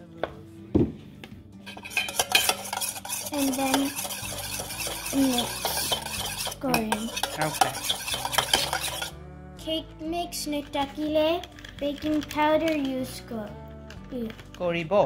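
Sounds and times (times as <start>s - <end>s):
metal spoon stirring batter in bowl: 1.7s - 9.2s.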